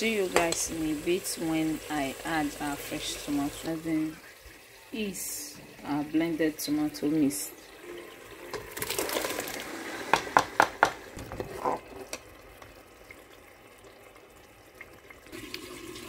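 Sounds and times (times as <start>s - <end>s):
tomatoes sizzling in oil: 0.0s - 13.0s
sharp knocks on a pot: 10.1s - 11.0s.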